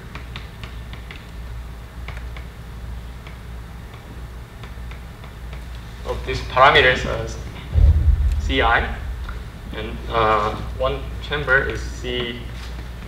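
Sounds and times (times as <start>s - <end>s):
low steady hum: 7.6s - 10.7s.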